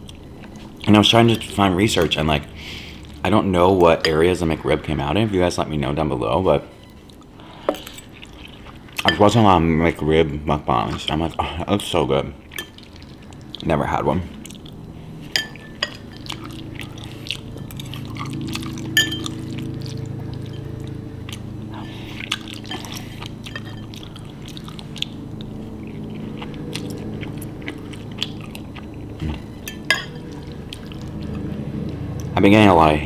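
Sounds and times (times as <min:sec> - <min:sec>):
soft chewing: 0:00.0 - 0:04.4, 0:06.8 - 0:09.3, 0:12.4 - 0:32.4
steady low hum: 0:00.0 - 0:33.0
spoon clinking against bowl: 0:15.4 - 0:16.4, 0:18.9 - 0:19.4, 0:23.5 - 0:24.0, 0:29.6 - 0:30.3.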